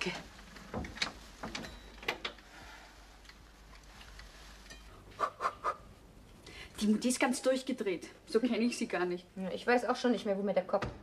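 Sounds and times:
soft rustle: 0.1s - 5.0s.

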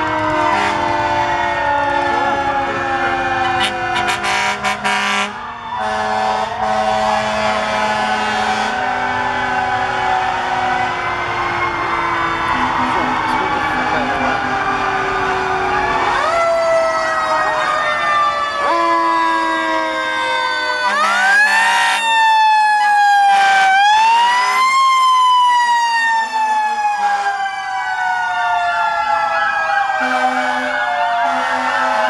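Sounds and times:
fire engine sirens wailing: 0.0s - 32.0s.

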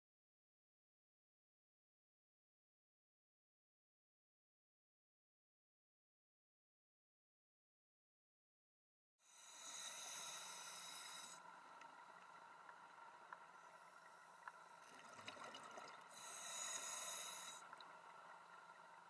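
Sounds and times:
steady faint hum: 9.2s - 19.0s
exhaled bubbles underwater: 14.8s - 16.2s.

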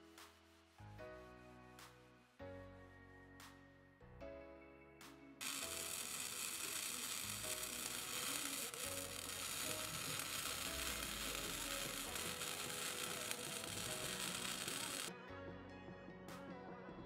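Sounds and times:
background music: 0.0s - 17.0s
welding arc hissing and crackling: 5.4s - 15.1s.

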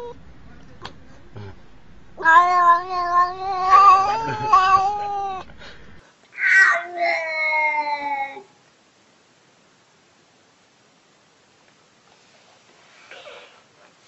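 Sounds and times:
cat meowing: 2.2s - 5.5s, 6.3s - 8.5s.

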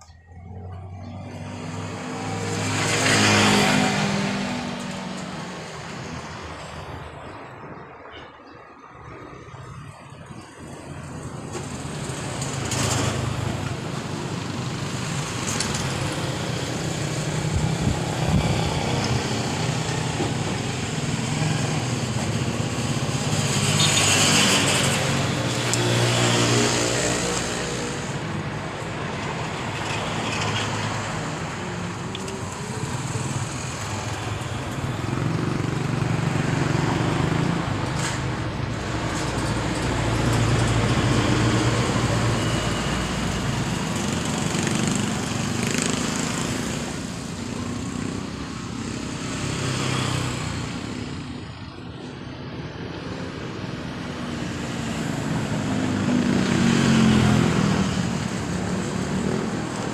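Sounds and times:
vehicles passing: 0.0s - 59.9s.

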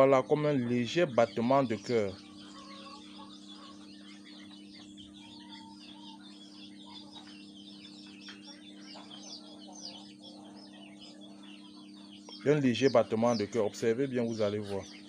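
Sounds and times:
chicks peeping: 0.0s - 15.0s
steady low hum: 0.0s - 15.0s.

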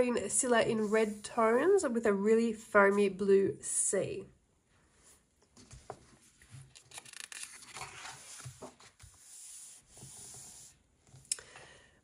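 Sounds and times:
hands rubbing paper: 0.7s - 1.5s
paper page rustling: 5.6s - 10.2s.

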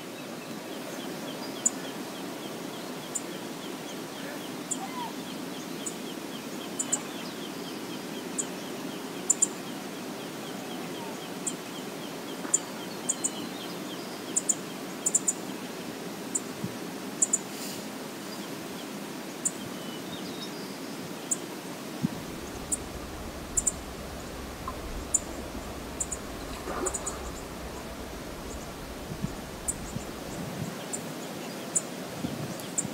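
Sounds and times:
flowing river water: 20.8s - 32.2s
low rumble: 22.0s - 30.7s.

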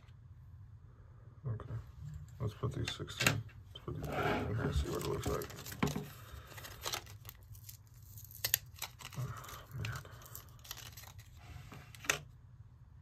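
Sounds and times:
plastic and paper crinkling: 4.5s - 12.2s
packaging tearing: 4.7s - 12.1s.

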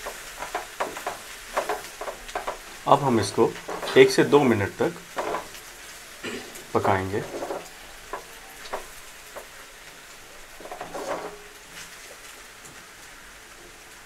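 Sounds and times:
spatula knocking against pan: 0.0s - 4.0s, 5.0s - 5.6s, 6.6s - 9.6s
spatula scraping pan: 0.0s - 12.1s
food sizzling in a pan: 0.0s - 14.0s.

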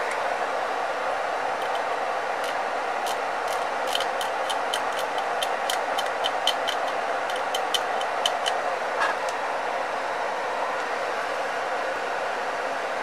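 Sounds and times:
rapid small sharp clicks: 1.6s - 8.7s.

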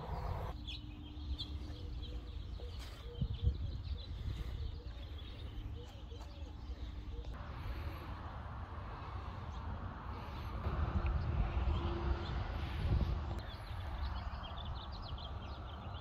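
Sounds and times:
birds calling: 0.0s - 16.0s
steady low rumble: 6.8s - 16.0s.

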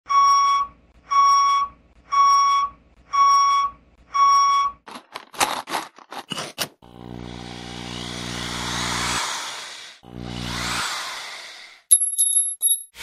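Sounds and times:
reversing alarm beeps: 0.1s - 4.8s.

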